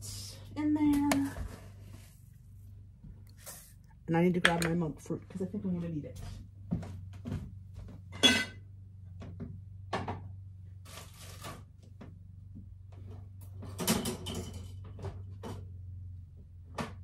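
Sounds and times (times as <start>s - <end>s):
kitchen items clattering: 8.0s - 8.7s, 13.5s - 15.8s.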